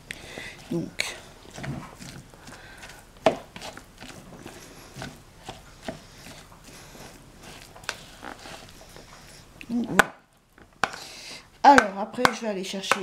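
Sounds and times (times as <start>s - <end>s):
fork mashing tuna: 0.1s - 10.2s.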